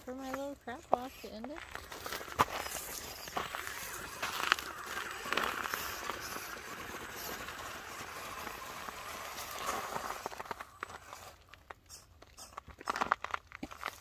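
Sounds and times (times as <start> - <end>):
toy car motor whirring: 0.0 - 14.0
tyres scrabbling on gravel: 0.0 - 14.0
faint clicks and crunches: 9.5 - 14.0.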